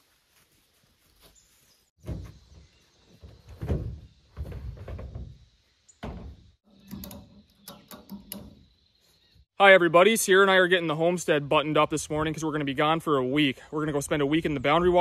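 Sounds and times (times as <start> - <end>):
canoe thumping and scraping: 2.0 - 8.6.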